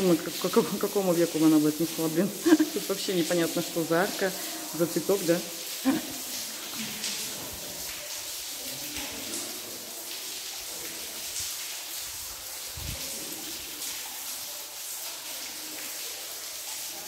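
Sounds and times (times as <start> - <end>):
faint distant voices: 3.4 - 17.0.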